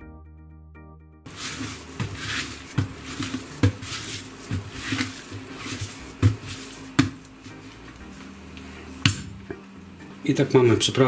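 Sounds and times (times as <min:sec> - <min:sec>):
hands rubbing meat: 0:01.3 - 0:09.0
meat thumping on worktop: 0:01.4 - 0:07.3, 0:09.0 - 0:09.6.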